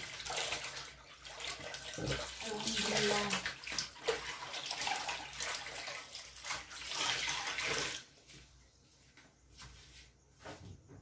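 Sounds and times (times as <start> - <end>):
water sloshing in washing machine: 0.0 - 8.6.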